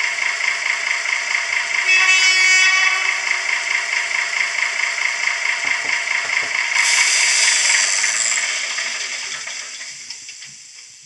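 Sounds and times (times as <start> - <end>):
diesel engine running from loudspeaker: 0.0 - 10.0
loud air hiss: 6.8 - 10.6.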